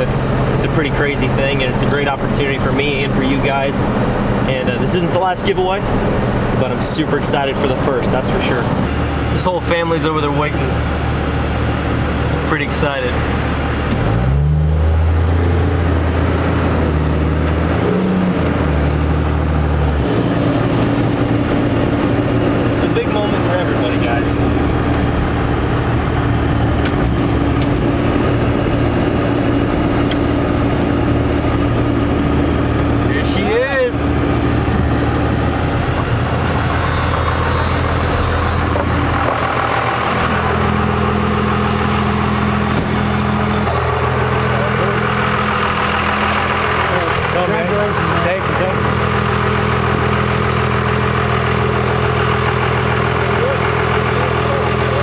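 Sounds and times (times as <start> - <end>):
diesel engine droning: 0.0 - 55.0.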